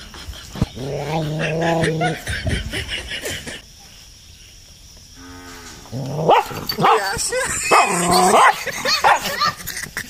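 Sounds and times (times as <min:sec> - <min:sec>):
snickering laughter: 0:00.0 - 0:03.7, 0:07.1 - 0:10.0
low growl: 0:00.7 - 0:02.3, 0:05.2 - 0:06.7.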